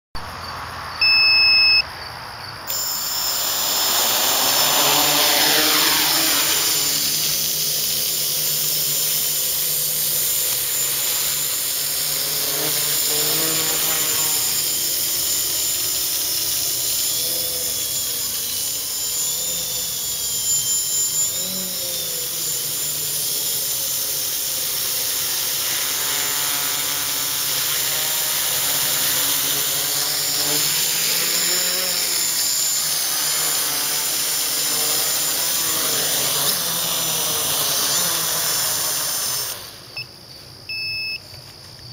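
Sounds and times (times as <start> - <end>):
quadcopter motors buzzing whine: 0.2 - 1.8, 2.4 - 41.9
loud electronic beep: 1.0 - 1.8, 2.7 - 3.5, 40.7 - 41.2.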